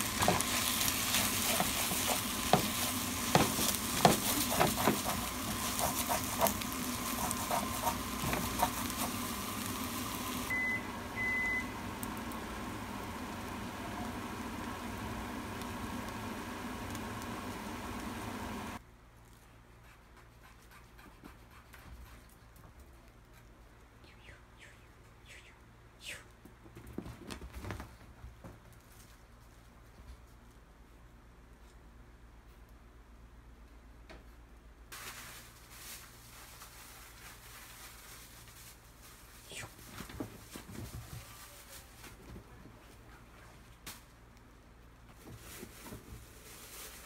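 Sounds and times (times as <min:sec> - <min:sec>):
frying pan sizzling: 0:00.0 - 0:18.8
faint room hiss: 0:08.9 - 0:47.0.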